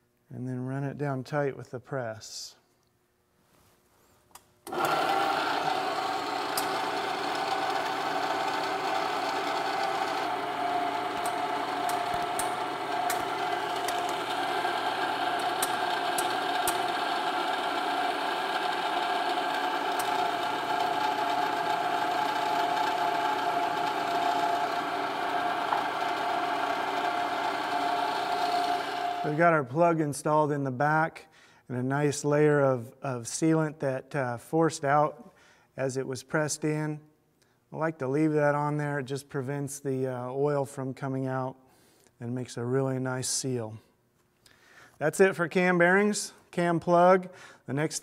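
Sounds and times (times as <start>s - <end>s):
powered shop press running: 4.6s - 29.4s.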